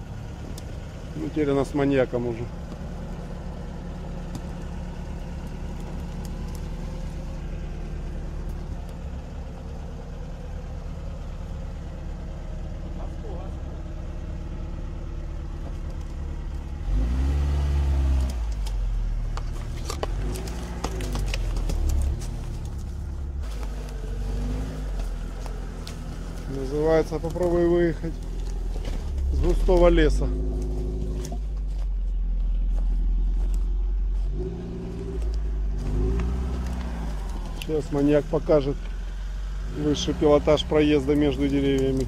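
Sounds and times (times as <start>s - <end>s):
deep low rumble: 0.0s - 39.4s
car engine revving: 0.0s - 42.0s
sticks cracking under tyres: 2.5s - 9.7s, 15.5s - 39.0s, 40.4s - 42.0s.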